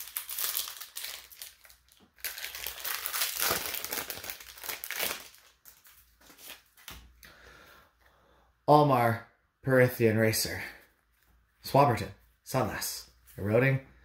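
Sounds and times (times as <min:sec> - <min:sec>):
foil wrapper crinkling: 0:00.0 - 0:06.7.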